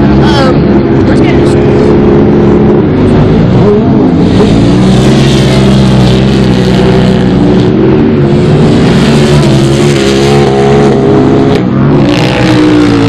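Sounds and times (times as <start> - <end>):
race engines running hard: 0.0 - 13.0.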